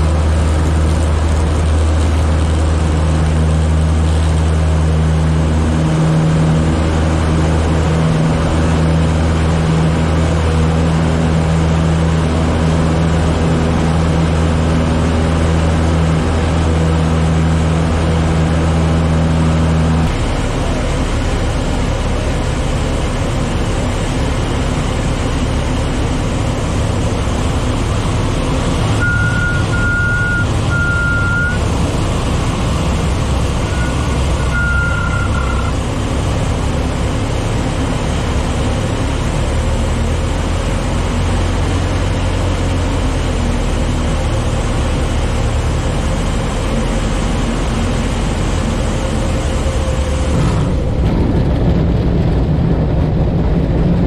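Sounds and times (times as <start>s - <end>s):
propeller plane engine running: 0.0s - 54.0s
high beeping tone: 29.0s - 31.6s, 33.7s - 35.8s
wind rush over airframe: 49.5s - 54.0s.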